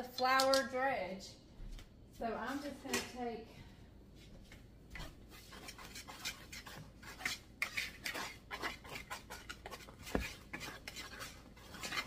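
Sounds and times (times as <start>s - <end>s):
wire whisk scraping bowl: 5.3s - 12.0s.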